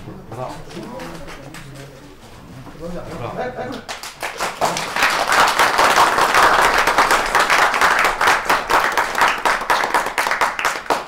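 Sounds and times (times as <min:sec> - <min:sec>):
crowd applauding: 0:03.9 - 0:11.0.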